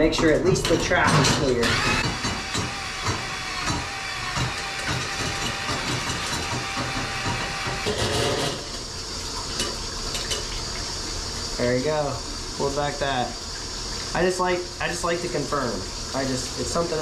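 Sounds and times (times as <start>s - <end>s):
drain snake motor whine: 1.6s - 8.8s.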